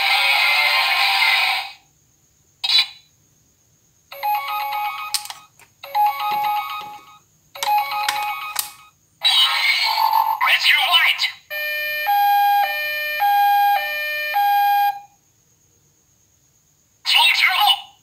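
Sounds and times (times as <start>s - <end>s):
toy electronic sound effect: 4.1s - 10.7s, 11.5s - 15.0s
electronic beeping jingle: 5.8s - 8.8s.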